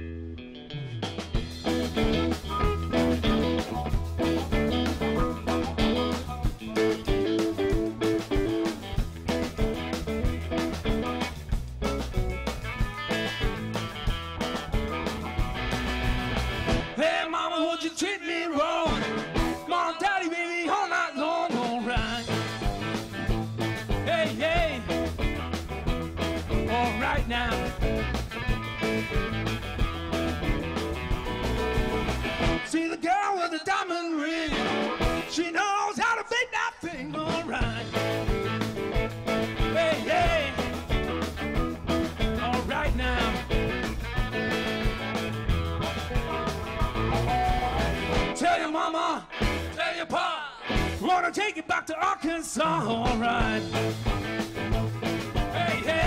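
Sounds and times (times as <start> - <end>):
live blues-rock band: 0.0 - 33.0, 34.2 - 56.0
amplified harmonica: 1.4 - 16.6.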